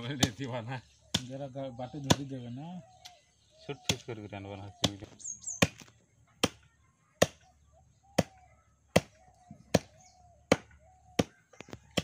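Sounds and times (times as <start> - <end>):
cleaver chopping meat on wood: 1.1 - 1.3, 4.8 - 6.6, 8.2 - 12.0.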